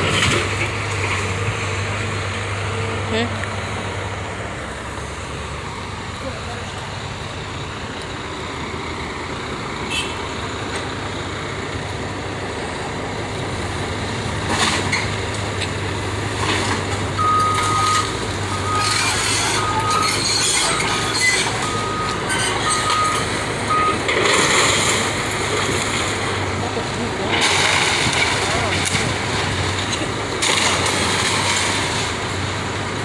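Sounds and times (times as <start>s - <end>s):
excavator engine running: 0.0s - 33.0s
alarm beeping: 17.2s - 24.0s
splintering timber crashes: 27.2s - 32.2s.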